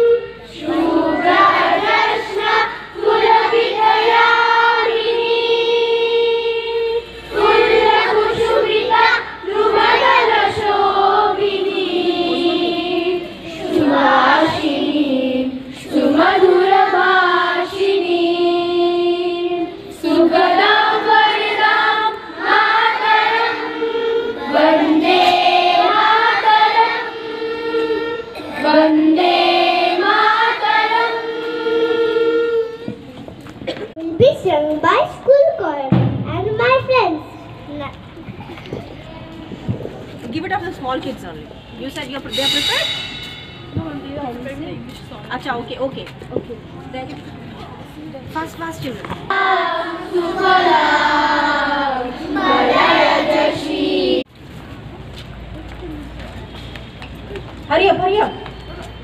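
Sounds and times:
children singing in unison: 0:00.0 - 0:33.1, 0:49.3 - 0:54.3.

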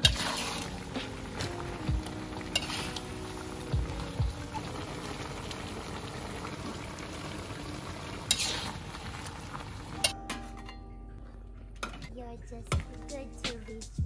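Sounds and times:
metal spatula scraping: 0:00.0 - 0:01.5, 0:02.5 - 0:03.2, 0:08.2 - 0:08.8
prawns sizzling in a pan: 0:00.0 - 0:10.2.

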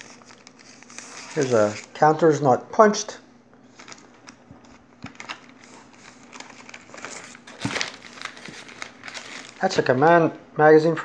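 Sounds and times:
plastic sleeve crinkling: 0:00.0 - 0:02.2, 0:03.7 - 0:10.0.

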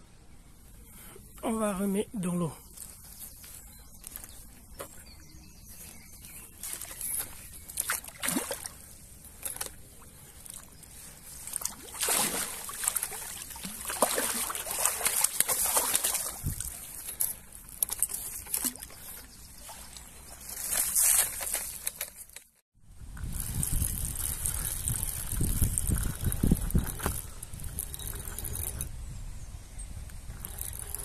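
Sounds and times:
water sloshing and splashing: 0:06.6 - 0:21.8.

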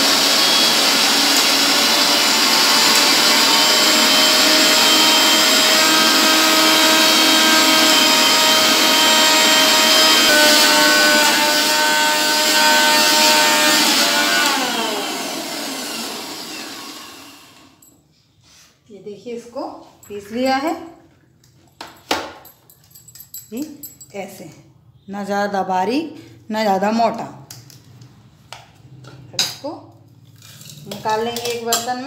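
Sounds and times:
mixer grinder running: 0:00.0 - 0:17.8.

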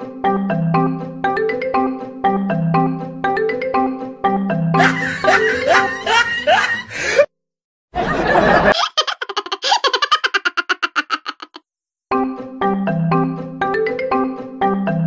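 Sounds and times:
xylophone background music: 0:00.4 - 0:05.7, 0:12.6 - 0:15.0
cartoon cat giggling: 0:04.8 - 0:06.8, 0:08.7 - 0:11.6.

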